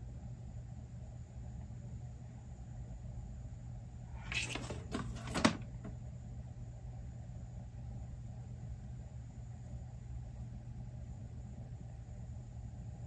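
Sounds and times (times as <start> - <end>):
steady low hum: 0.0 - 13.0
stylus scratching on glass screen: 4.2 - 5.5.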